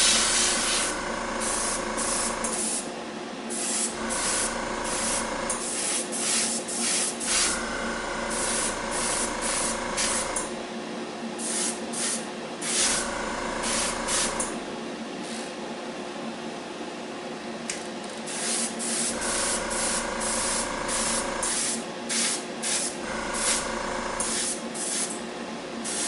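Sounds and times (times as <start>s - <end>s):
airbrush spraying hiss bursts: 0.0s - 2.8s, 3.5s - 7.5s, 8.3s - 10.2s, 11.4s - 13.0s, 13.6s - 14.5s, 18.3s - 23.6s, 24.2s - 25.2s
steady motor hum: 0.0s - 26.0s.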